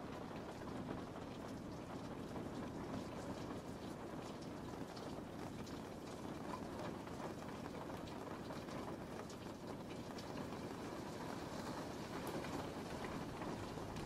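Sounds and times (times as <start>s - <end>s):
raindrop ticks: 0.0s - 14.0s
steady rain hiss: 0.0s - 14.0s.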